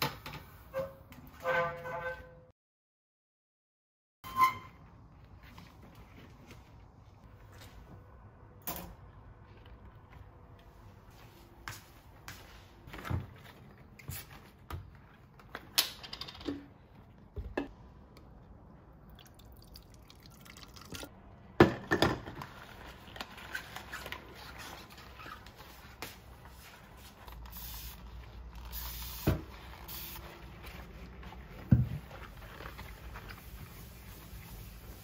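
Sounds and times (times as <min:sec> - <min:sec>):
items knocking and clinking: 0:21.6 - 0:22.4.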